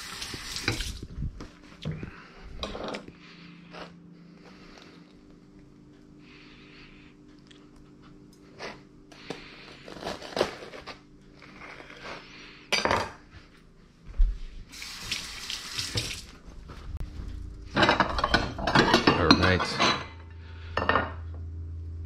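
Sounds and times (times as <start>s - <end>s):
faucet running into steel sink: 14.7s - 16.3s.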